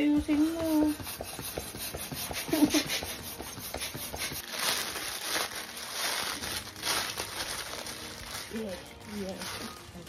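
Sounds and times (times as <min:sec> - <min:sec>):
hand balloon pump strokes: 0:00.0 - 0:04.6
tissue paper rustling: 0:04.0 - 0:10.0.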